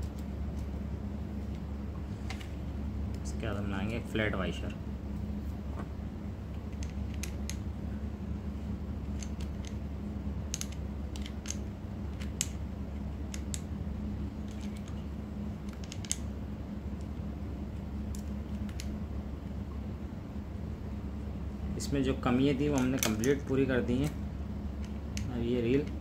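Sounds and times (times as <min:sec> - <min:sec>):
steady low hum: 0:00.0 - 0:26.0
small parts clicking: 0:10.5 - 0:12.6, 0:15.6 - 0:16.2.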